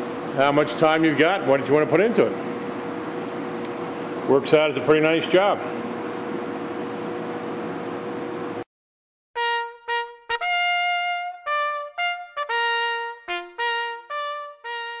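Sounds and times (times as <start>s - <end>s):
solo trumpet melody: 9.4s - 15.0s.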